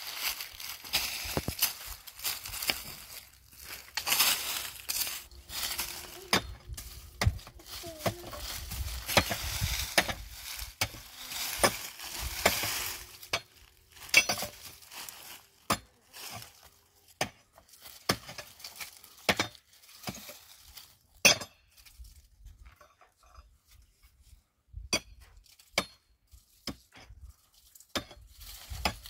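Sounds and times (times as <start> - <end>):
digging tool scraping stony ground: 0.0 - 24.3, 25.0 - 29.0
digging tool clinking strikes: 3.9 - 11.0, 12.4 - 14.7.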